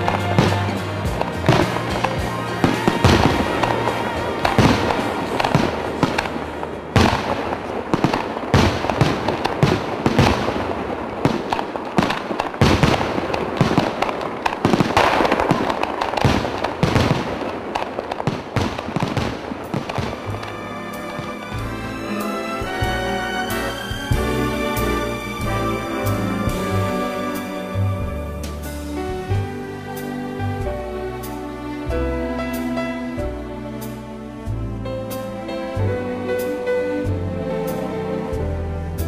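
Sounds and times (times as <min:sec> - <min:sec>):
music: 0:00.0 - 0:10.7, 0:19.0 - 0:39.0
fireworks bangs and crackling: 0:00.0 - 0:34.1.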